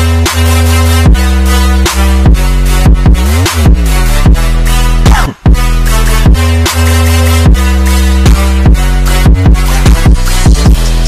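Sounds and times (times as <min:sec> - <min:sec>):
electronic music with heavy bass: 0:00.0 - 0:11.0.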